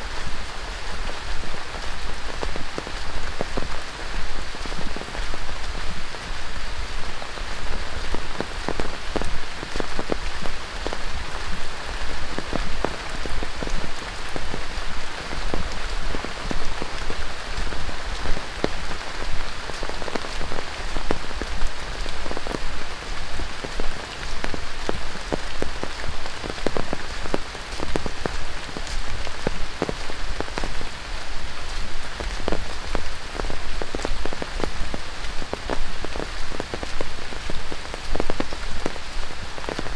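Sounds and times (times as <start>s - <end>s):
heavy rain on foliage: 0.0s - 39.9s
sharp raindrop taps: 23.6s - 30.9s.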